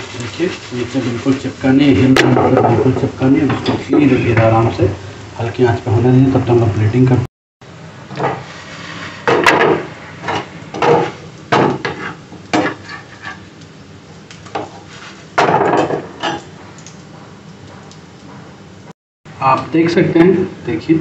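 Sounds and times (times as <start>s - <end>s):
utensils clinking against dishes: 15.5s - 16.5s.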